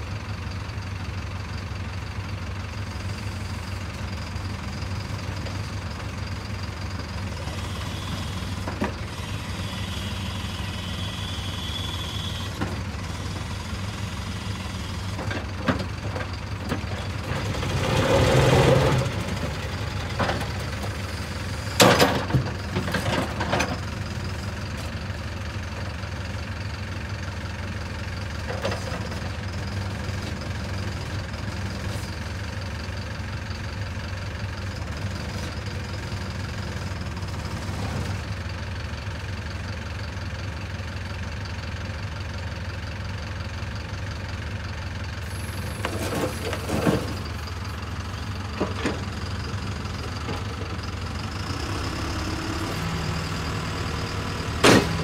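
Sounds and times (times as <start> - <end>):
diesel engine idling: 0.0 - 55.0
loud clunks: 54.6 - 55.0.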